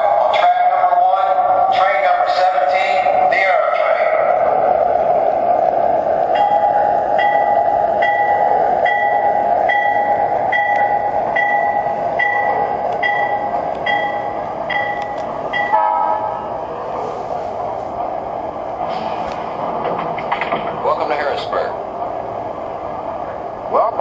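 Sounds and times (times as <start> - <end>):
bell ringing: 6.4 - 16.4.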